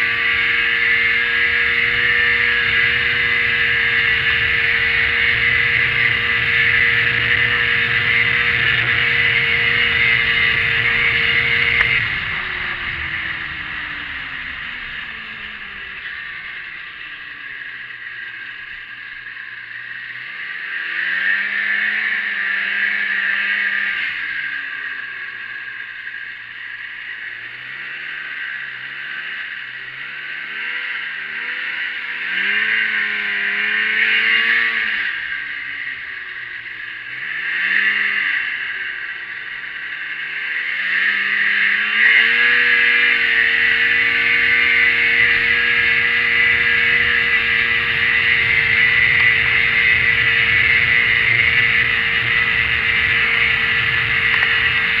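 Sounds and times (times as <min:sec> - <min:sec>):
snowmobile engine revving: 0:00.0 - 0:55.0.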